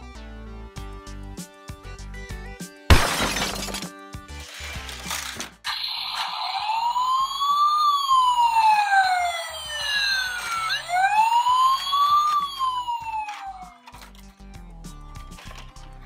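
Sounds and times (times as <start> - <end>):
electronic toy siren wailing: 5.7 - 13.9.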